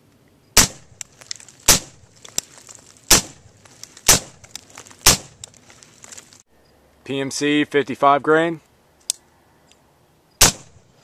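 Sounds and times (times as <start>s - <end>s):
suppressed rifle shots: 0.6s - 1.0s, 3.1s - 3.5s, 5.0s - 5.4s, 10.4s - 10.9s.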